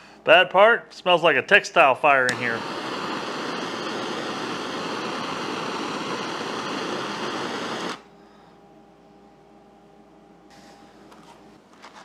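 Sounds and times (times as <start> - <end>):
faint room hum: 0.0 - 3.4, 7.9 - 12.0
gas torch flame hissing: 2.2 - 8.1.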